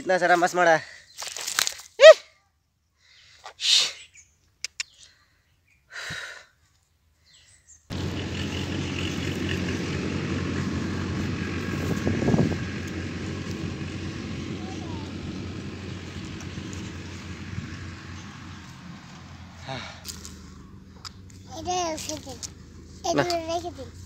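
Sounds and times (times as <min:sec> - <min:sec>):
birds chirping: 0:07.2 - 0:23.2
outdoor background rumble: 0:07.9 - 0:24.0.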